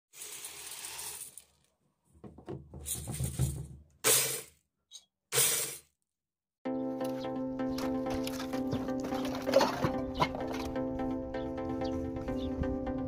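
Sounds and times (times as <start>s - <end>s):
kernels rattling in a pot: 0.2s - 1.6s.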